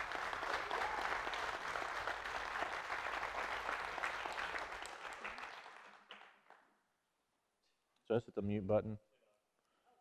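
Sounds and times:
crowd clapping: 0:00.0 - 0:06.8.

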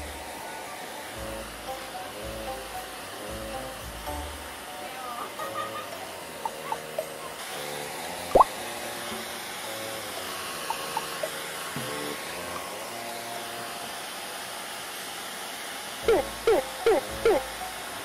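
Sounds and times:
hair dryer blowing: 0:00.0 - 0:03.9, 0:04.5 - 0:16.4
quiet background music: 0:00.0 - 0:09.2, 0:16.0 - 0:18.0.

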